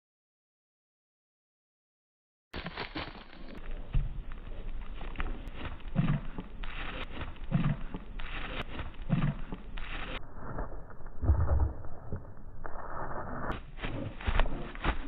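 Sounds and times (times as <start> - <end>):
dog paws thudding on grass: 2.6 - 10.0, 13.6 - 15.0.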